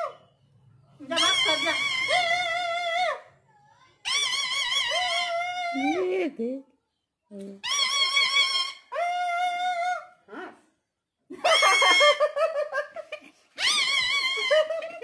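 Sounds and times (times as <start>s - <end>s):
parrot high-pitched calls: 1.1s - 3.3s, 4.0s - 6.0s, 7.6s - 10.2s, 11.4s - 12.3s, 13.6s - 14.7s
women laughing: 11.3s - 13.4s, 14.3s - 15.0s.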